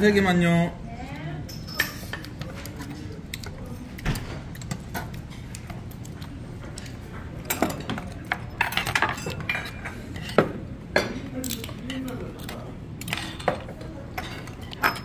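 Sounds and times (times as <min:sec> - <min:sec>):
steady background noise: 0:00.0 - 0:15.0
tableware clinking on wooden table: 0:13.1 - 0:15.0.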